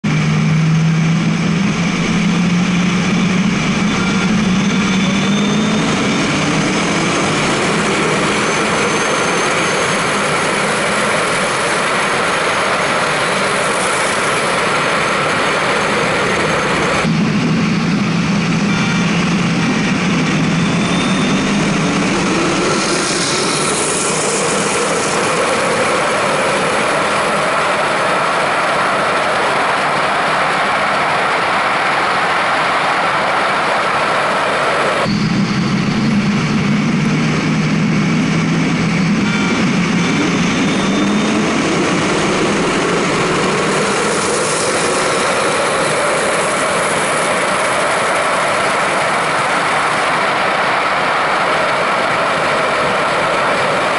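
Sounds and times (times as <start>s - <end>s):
wind and road noise: 0.0s - 53.9s.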